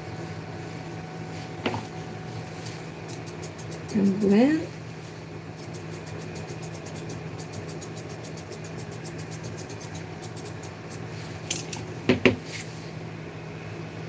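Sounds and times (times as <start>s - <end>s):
scissors snipping hair: 3.1s - 4.4s, 5.6s - 11.8s.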